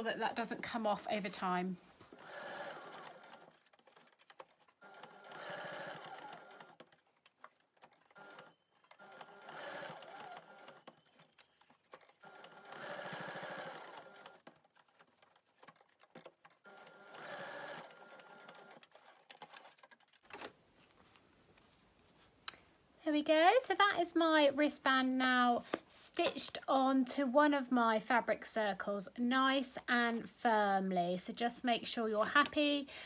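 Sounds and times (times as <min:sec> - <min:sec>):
sewing machine stitching: 0:02.1 - 0:20.4.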